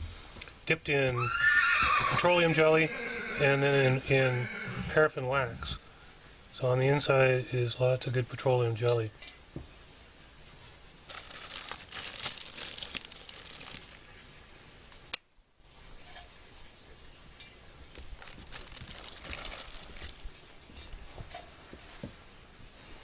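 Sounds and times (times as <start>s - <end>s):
plastic bag crinkling: 11.0s - 15.0s, 17.8s - 20.4s.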